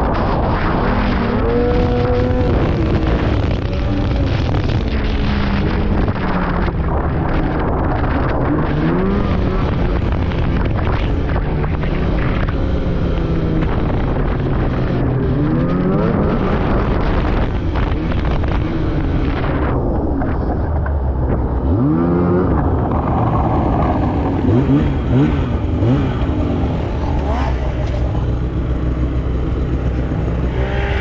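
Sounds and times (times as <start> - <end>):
snowmobile engine revving: 21.5 - 31.0.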